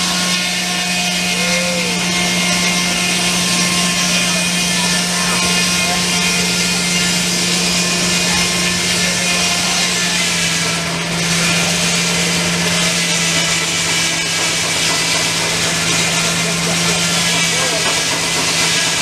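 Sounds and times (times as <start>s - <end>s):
circular saw sawing: 0.0s - 19.0s
steam engine humming: 0.0s - 19.0s.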